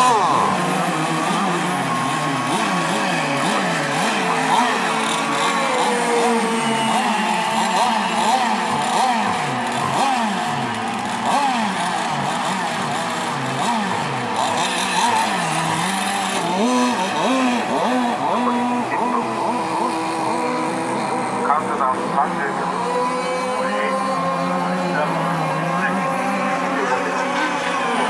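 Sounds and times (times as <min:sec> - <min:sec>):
rc boat engines racing: 0:00.0 - 0:28.0.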